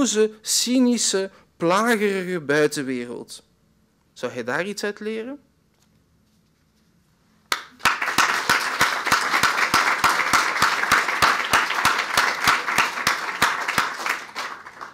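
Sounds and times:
audience applauding: 7.5 - 14.9.

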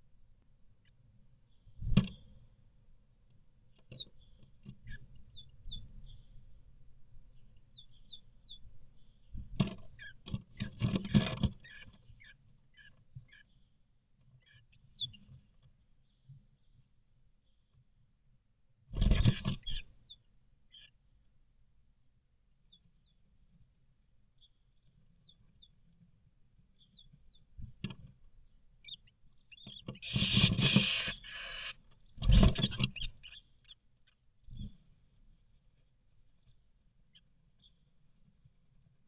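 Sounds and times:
bird chirping: 0.8 - 2.4, 3.7 - 6.6, 7.3 - 17.8, 19.0 - 21.0, 22.4 - 23.3, 24.3 - 26.0, 26.6 - 27.6, 28.3 - 38.0.

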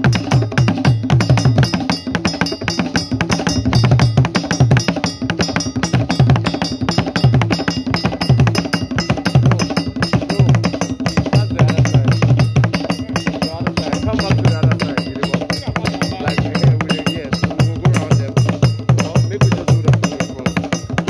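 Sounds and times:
drum ensemble playing: 0.0 - 21.0.

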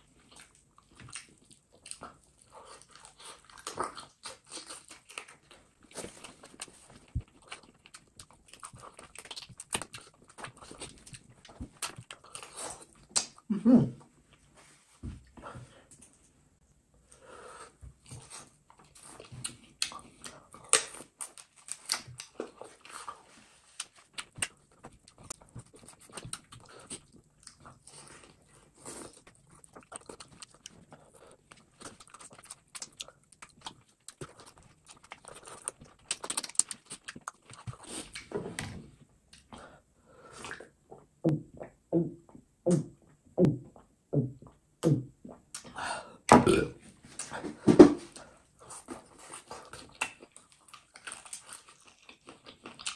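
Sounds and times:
wet chewing and lip smacking: 0.0 - 13.4, 18.0 - 38.3, 48.6 - 52.9.

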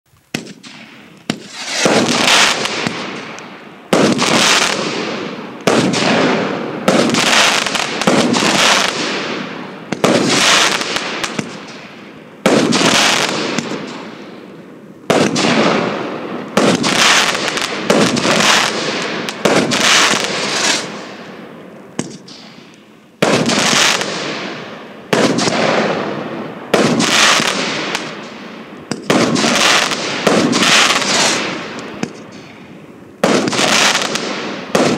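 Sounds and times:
firework shots: 0.2 - 34.9
firework stars hissing: 0.5 - 3.3, 16.8 - 21.1, 29.4 - 32.8.

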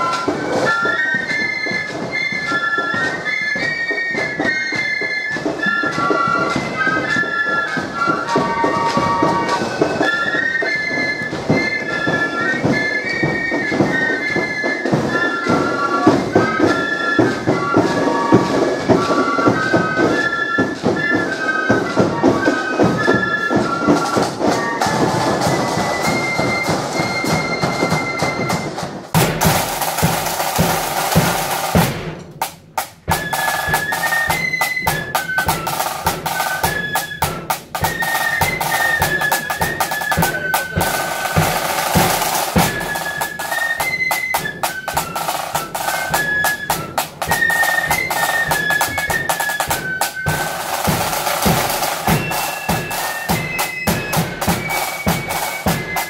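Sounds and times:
marching band playing: 0.0 - 56.0
wind instrument melody: 0.0 - 56.0
side drum and bass drum beating: 21.7 - 56.0.

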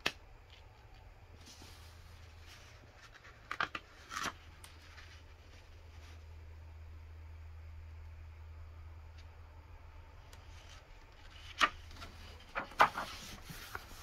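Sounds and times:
low steady hum: 0.0 - 14.0
crisp page flips: 1.4 - 6.2, 10.4 - 14.0
paper rustling: 1.4 - 6.2, 10.4 - 14.0.

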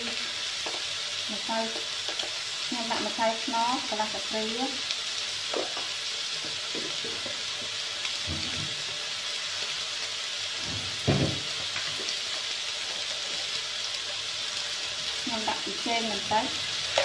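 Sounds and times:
meat sizzling in a wok: 0.0 - 17.0.

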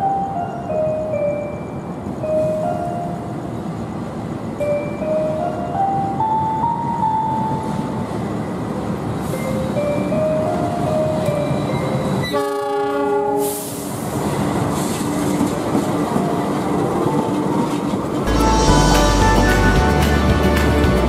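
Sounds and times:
train rumbling past: 0.0 - 21.0
train horn: 12.2 - 13.9.

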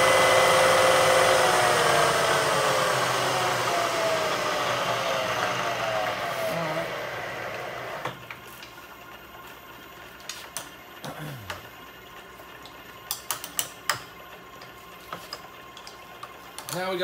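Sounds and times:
servo whine: 0.0 - 8.2
machine low hum: 0.0 - 8.3.

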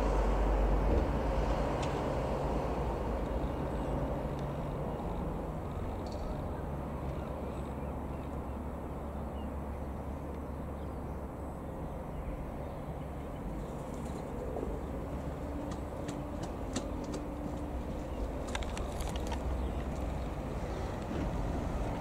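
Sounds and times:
propeller plane engine droning: 0.0 - 22.0
sharp clicks: 18.4 - 20.1.

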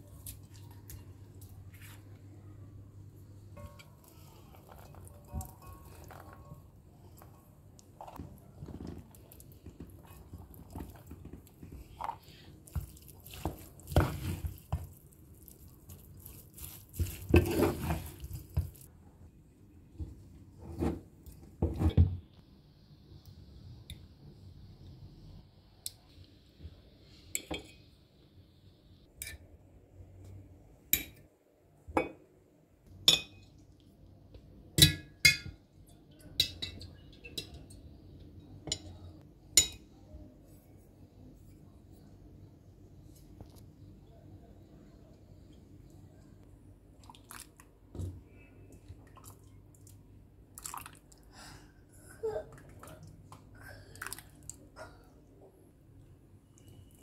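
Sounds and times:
wooden spatula stirring: 3.6 - 18.9.

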